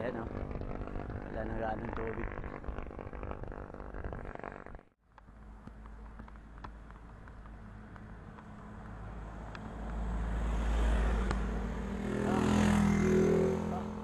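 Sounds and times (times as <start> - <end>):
motorcycle engine hum: 0.0 - 14.0.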